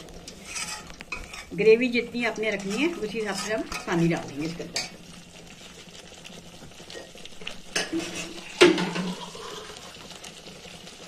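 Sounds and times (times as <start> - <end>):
spoon scraping metal pan: 0.2 - 5.0, 7.7 - 9.2.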